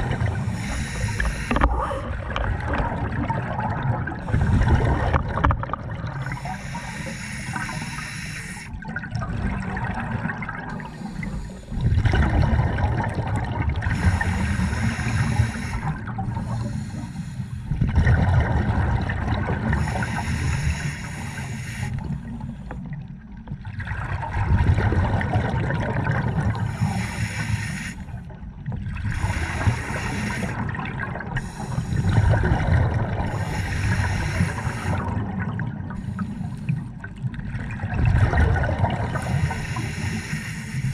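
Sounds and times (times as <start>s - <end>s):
exhaled bubbles rumbling: 0.0s - 7.9s, 8.7s - 17.0s, 17.6s - 20.6s, 22.0s - 40.9s
regulator hissing inhalations: 0.2s - 1.8s, 6.2s - 8.7s, 10.8s - 11.8s, 13.9s - 17.7s, 19.7s - 22.7s, 26.6s - 28.1s, 29.2s - 30.6s, 31.4s - 32.4s, 33.3s - 35.1s, 35.9s - 36.8s, 39.2s - 40.9s.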